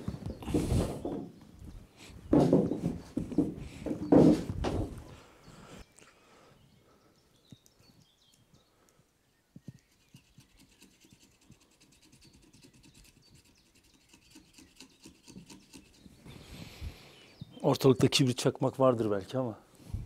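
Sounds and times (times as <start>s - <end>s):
soft knocks: 2.3s - 5.0s
knife scraping wooden log: 9.7s - 16.2s.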